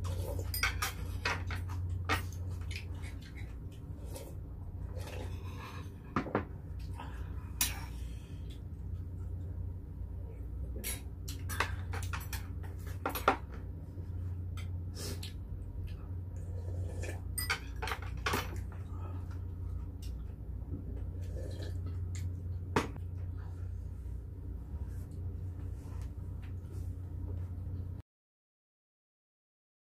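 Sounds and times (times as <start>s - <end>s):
steady low hum: 0.0s - 28.0s
utensils clinking on stone pots: 0.4s - 2.4s, 17.4s - 18.6s.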